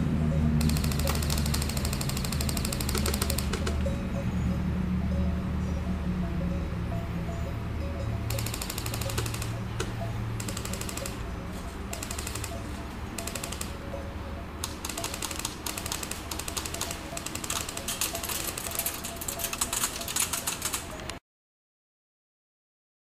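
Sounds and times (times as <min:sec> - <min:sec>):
airsoft rifle bursts: 0:00.6 - 0:03.9, 0:08.3 - 0:13.8, 0:14.6 - 0:21.1.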